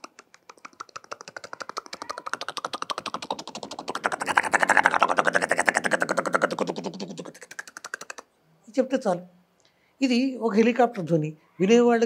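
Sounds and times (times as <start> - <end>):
man imitating helicopter with mouth: 0.0 - 8.3.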